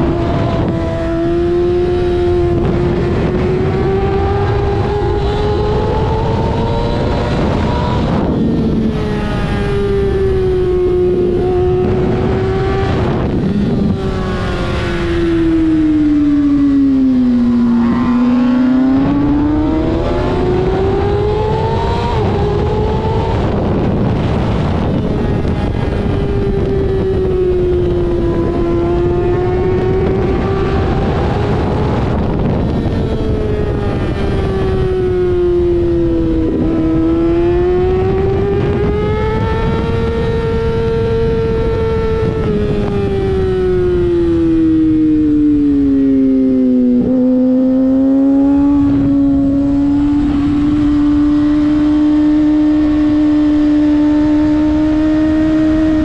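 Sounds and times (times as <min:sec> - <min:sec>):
motorcycle engine revving: 0:00.0 - 0:56.0
wind rush on microphone: 0:00.0 - 0:56.0.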